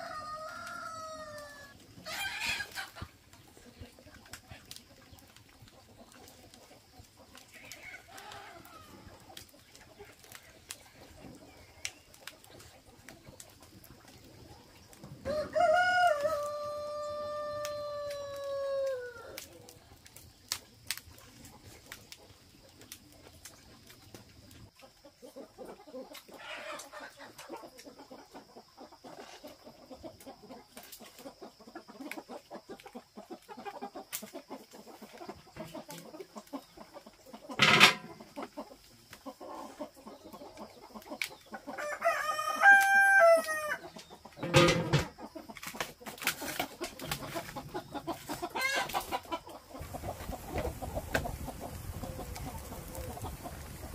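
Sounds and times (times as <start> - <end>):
rooster crowing: 0.0 - 2.7, 15.2 - 19.4, 41.8 - 43.8
chickens clucking: 0.0 - 53.9.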